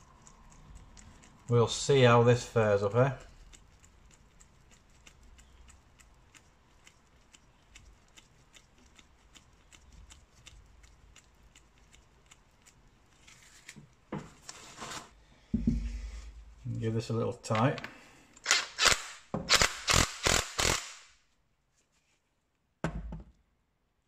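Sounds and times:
paper towel rustling: 13.2s - 15.2s
thump on workbench: 15.5s - 15.9s.

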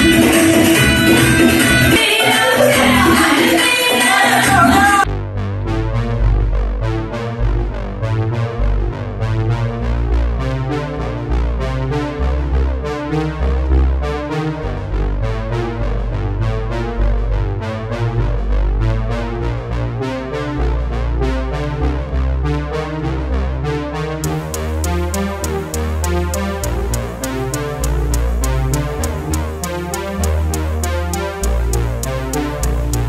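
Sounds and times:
song with vocals: 0.0s - 5.1s
synthesizer music with heavy bass: 24.2s - 33.0s.

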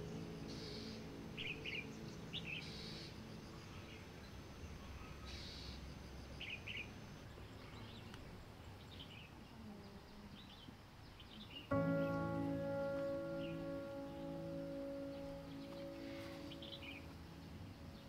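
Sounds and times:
sustained musical chord: 0.0s - 4.4s, 11.7s - 18.0s
low steady hiss: 0.0s - 18.0s
small birds chirping: 0.0s - 18.0s.

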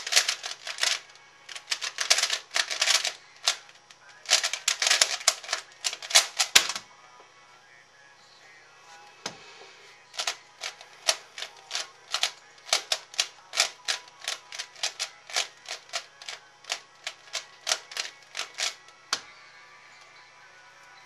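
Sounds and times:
puzzle cube plastic clacks: 0.0s - 6.8s, 10.2s - 18.8s.

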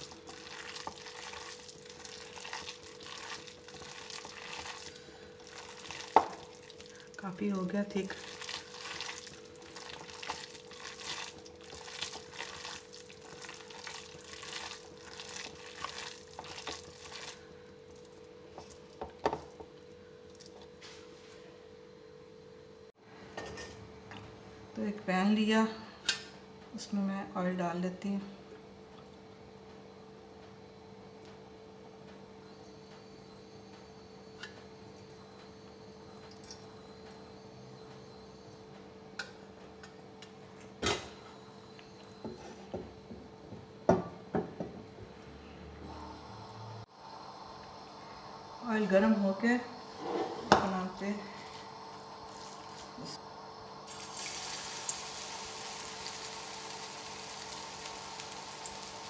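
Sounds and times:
hand squelching wet mixture: 0.0s - 7.0s, 8.1s - 19.0s
faint steady hum: 0.0s - 59.0s.

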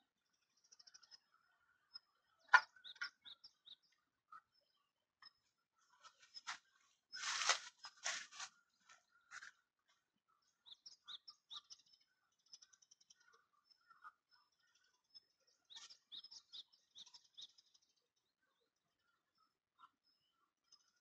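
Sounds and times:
faint bird trill: 0.0s - 8.4s
small bird chirping: 0.0s - 21.0s.

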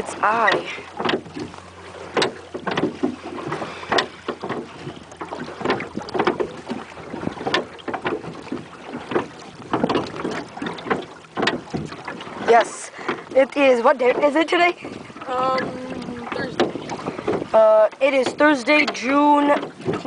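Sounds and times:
knocks and thuds in boat: 0.0s - 20.0s
wind on microphone: 2.7s - 12.6s, 13.2s - 18.5s.

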